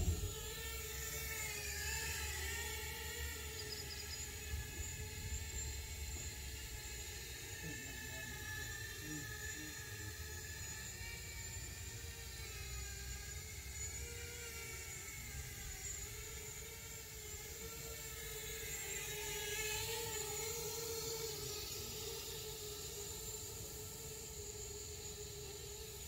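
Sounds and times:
low rumble: 0.0s - 0.4s
drone propellers whining: 0.0s - 26.0s.

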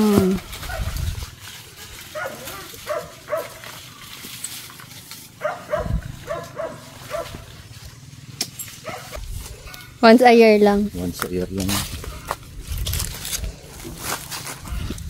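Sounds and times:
dog barking: 2.1s - 3.6s, 5.4s - 7.5s, 8.8s - 10.0s.

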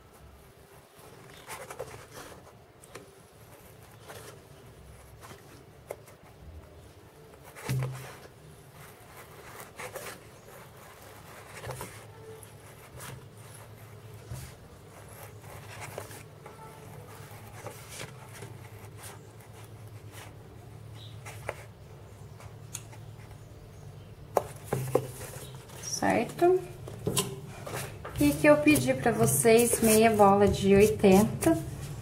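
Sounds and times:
foam rustling: 27.5s - 32.0s.

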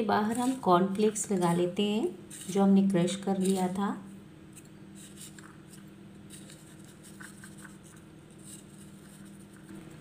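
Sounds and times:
spoon scraping in cornflakes: 0.0s - 3.8s.

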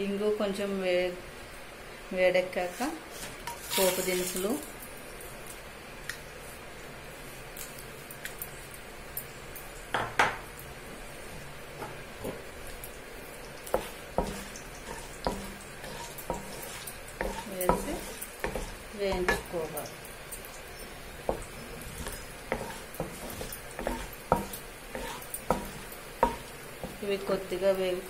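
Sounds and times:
spices sizzling in hot oil: 2.4s - 28.0s
spatula knocking and scraping pan: 13.6s - 19.9s, 20.8s - 27.6s.

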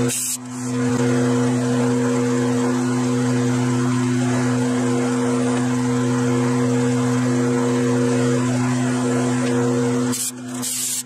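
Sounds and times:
metal lathe humming: 0.0s - 11.0s.

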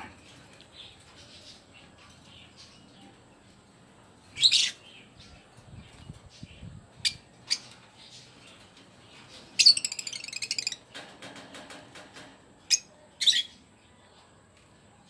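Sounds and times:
parrots chattering: 9.3s - 10.9s.

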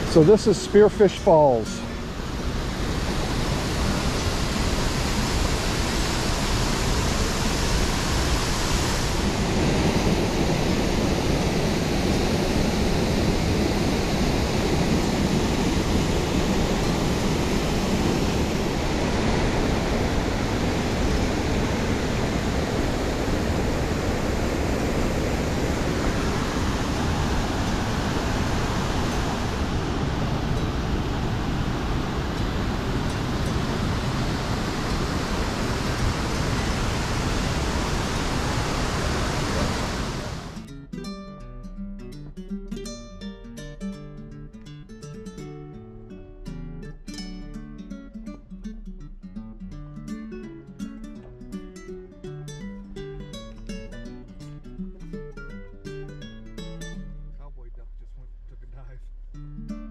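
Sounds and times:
waterfall rushing: 0.0s - 40.7s.

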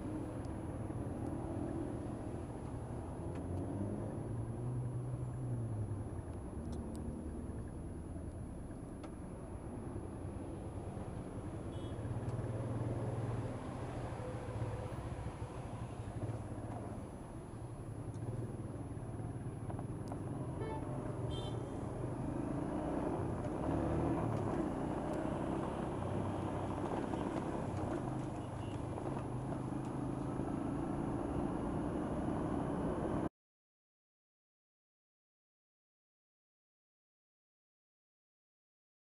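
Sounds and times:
city traffic noise: 0.0s - 33.3s
vehicle horn toot: 20.6s - 21.7s.

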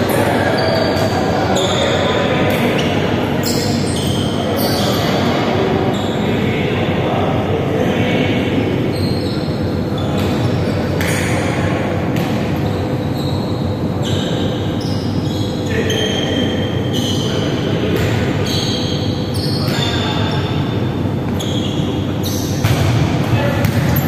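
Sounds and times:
volleyball being struck: 22.6s - 24.0s
players' voices: 22.7s - 24.0s.

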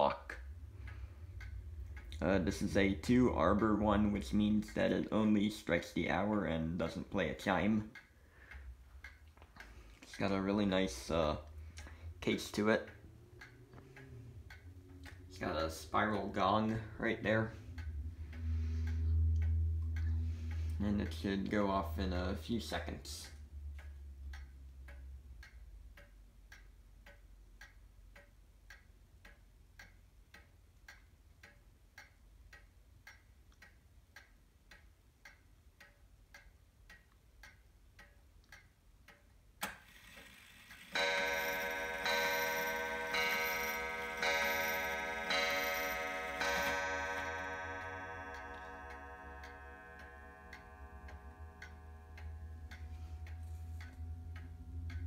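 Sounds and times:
wall clock ticking: 0.0s - 55.0s
clock strike release click: 24.3s - 55.0s
hammer striking spiral gong: 41.6s - 55.0s.

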